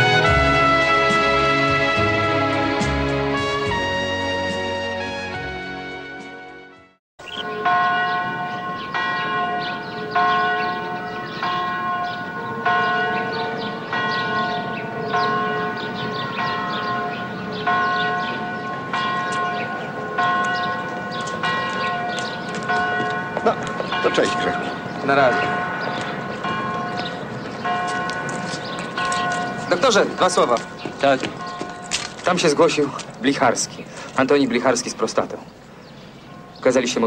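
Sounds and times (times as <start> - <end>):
bell tolling: 7.3 - 32.4.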